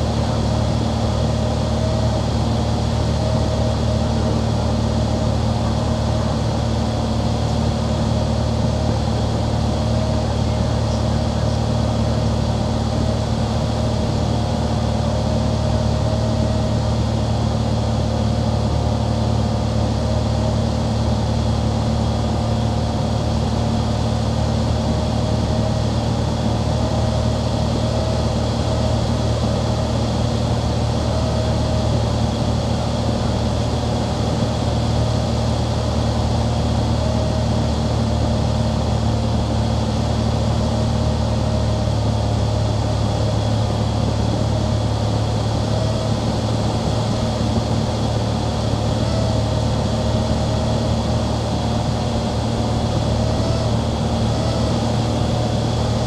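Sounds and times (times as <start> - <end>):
propeller airplane droning: 0.0 - 56.0.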